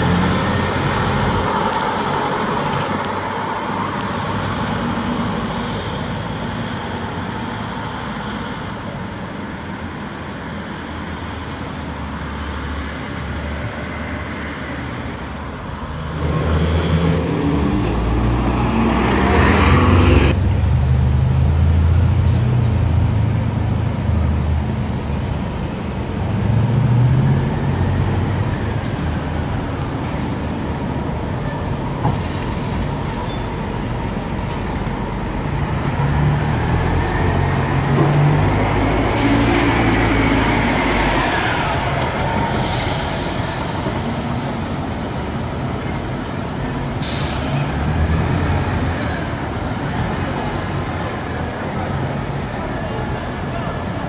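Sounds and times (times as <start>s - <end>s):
bus engines running: 0.0s - 54.0s
bus whine passing: 0.0s - 54.0s
air brakes hissing: 42.0s - 45.0s, 47.0s - 47.7s.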